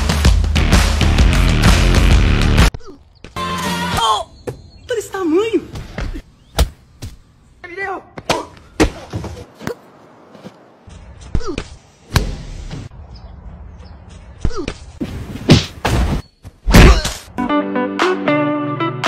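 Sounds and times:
sharp thuds and slams: 14.4 - 17.3.

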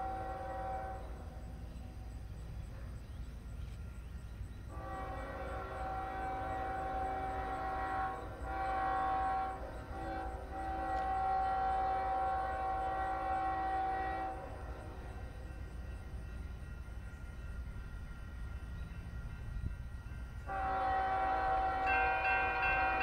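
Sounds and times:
locomotive air horn blasts: 0.0 - 1.3, 4.7 - 15.3, 20.4 - 23.0.

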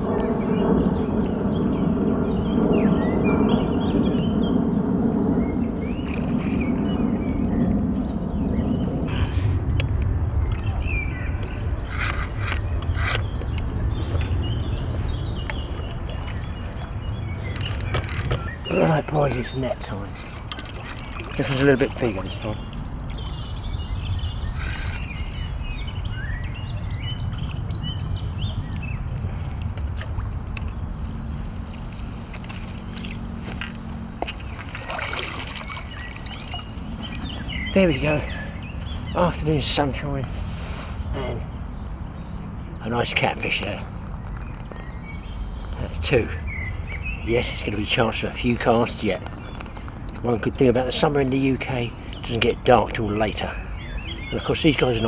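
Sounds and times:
jet airliner drone: 0.0 - 16.0, 23.8 - 34.8
small birds chirping: 0.0 - 55.0
fish splashing: 20.6 - 22.0, 34.5 - 36.8.

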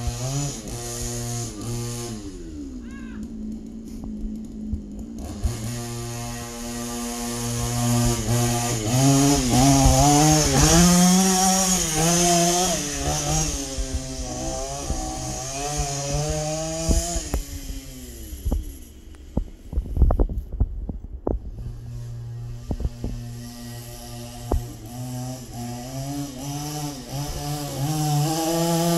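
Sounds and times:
scooter engine revving: 0.0 - 20.6, 21.4 - 28.9.

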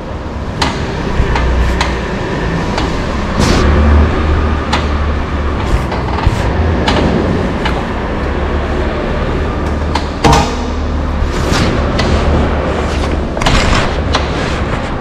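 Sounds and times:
shock absorber knocking: 0.6 - 2.0.

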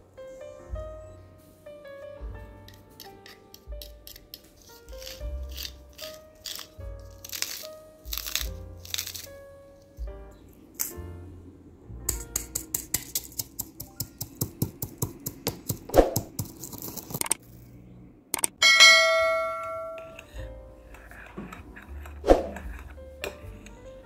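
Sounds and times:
spoon scraping ceramic bowl: 3.0 - 6.7
pestle pounding in stone mortar: 12.1 - 17.4
bell-like chime: 18.6 - 20.1.

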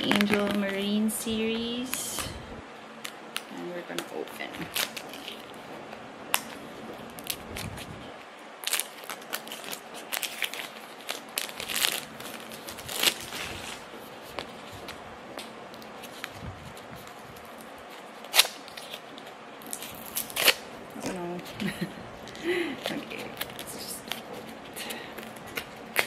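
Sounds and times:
cardboard packaging tearing: 4.1 - 5.7, 6.3 - 21.5, 22.8 - 26.0.

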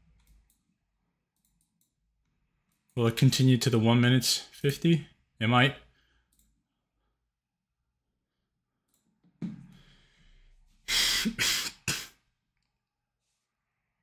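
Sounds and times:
person breathing out sharply: 9.7 - 12.1
loud breathy bursts: 9.8 - 12.1.

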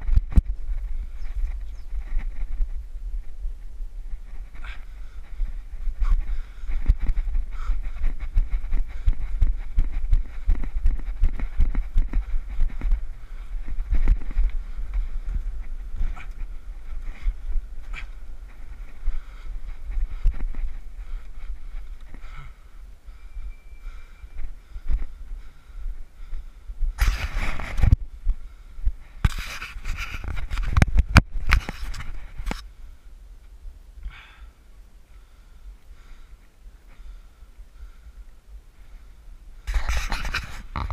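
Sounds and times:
running footsteps on felt roof: 0.0 - 32.6
wind rumble on microphone: 0.0 - 40.9
heavy breathing: 4.2 - 26.9, 34.0 - 39.7.

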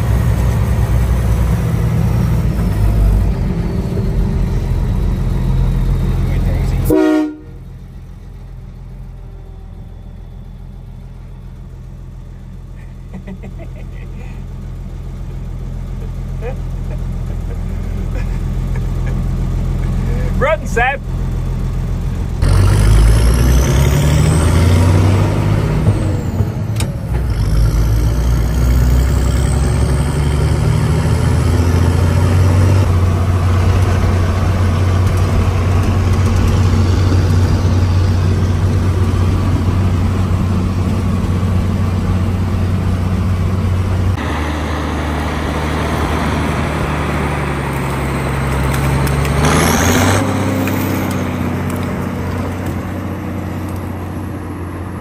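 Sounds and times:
heavy vehicle engine revving: 0.0 - 55.0.

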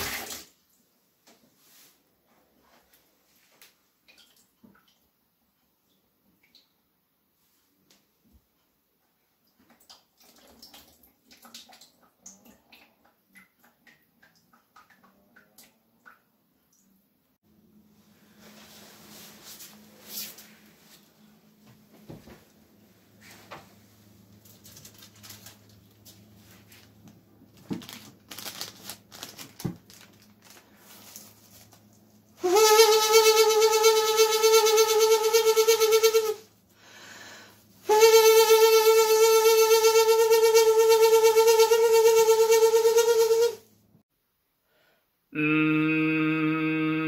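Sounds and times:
water dripping into water: 4.0 - 5.2, 5.8 - 7.0, 9.4 - 17.0
paper crinkling: 24.4 - 32.0
person humming through paper: 32.4 - 36.4, 37.9 - 43.6, 45.4 - 47.0.

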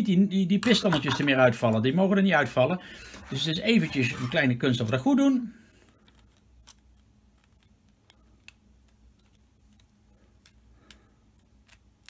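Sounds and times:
plastic parts clicking together: 5.9 - 12.0.

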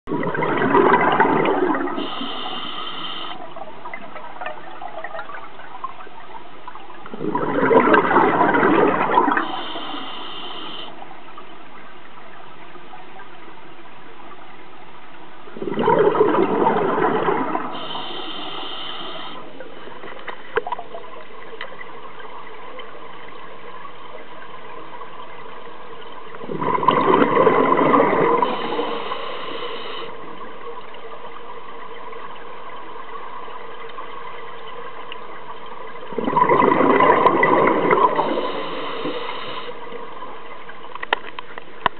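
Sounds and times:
regulator exhalation bubbles: 0.1 - 3.4, 7.1 - 10.2, 15.6 - 19.6, 26.4 - 30.2, 36.1 - 39.8.

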